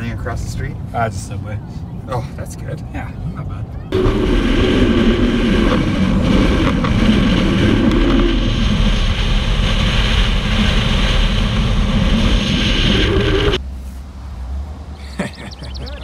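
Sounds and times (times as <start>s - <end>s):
truck road and engine noise: 0.0s - 16.0s
wind buffeting microphone: 2.8s - 13.6s.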